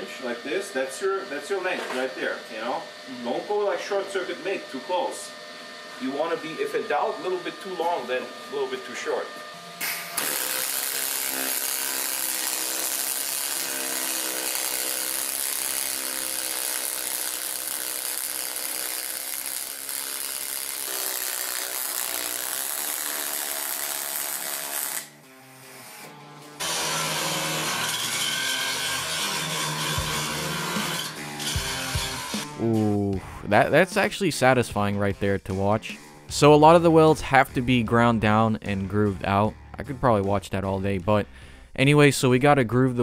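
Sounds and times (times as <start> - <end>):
angle grinder grinding metal: 0.0 - 32.6
welding arc crackling hiss: 9.8 - 25.2.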